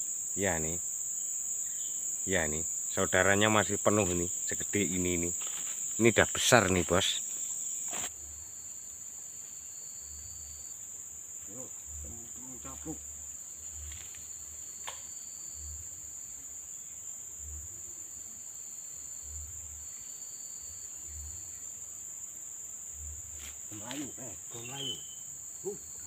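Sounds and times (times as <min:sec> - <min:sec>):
insects buzzing: 0:00.0 - 0:26.0.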